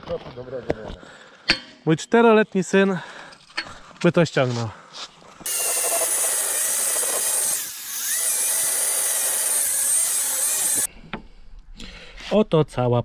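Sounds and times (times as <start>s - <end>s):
angle grinder cutting metal: 5.4s - 10.9s.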